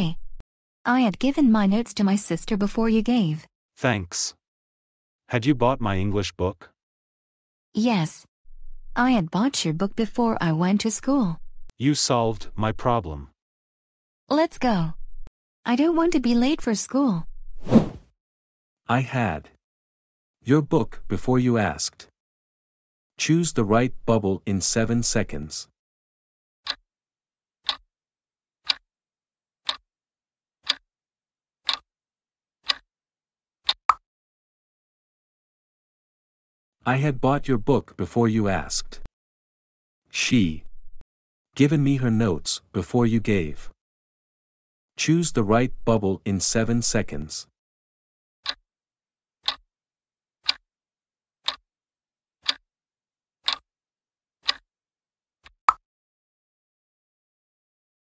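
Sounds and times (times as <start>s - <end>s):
clock-like ticks: 27.6s - 27.8s, 30.6s - 30.8s, 31.6s - 31.8s, 32.6s - 32.8s, 33.7s - 33.9s, 49.4s - 49.6s, 50.4s - 50.6s, 51.4s - 51.6s, 52.4s - 52.6s, 53.4s - 53.6s, 54.4s - 54.6s.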